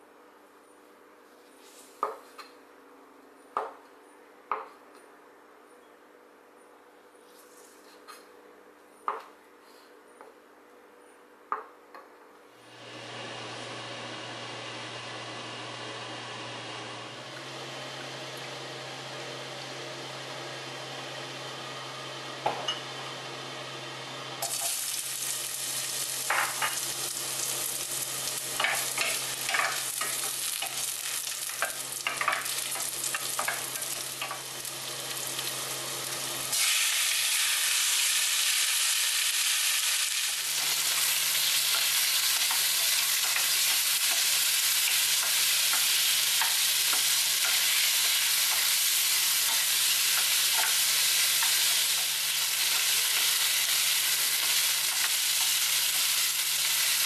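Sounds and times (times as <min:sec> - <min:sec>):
chicken sizzling in pan: 0:12.7 - 0:57.0
ginger sizzling in oil: 0:22.8 - 0:57.0.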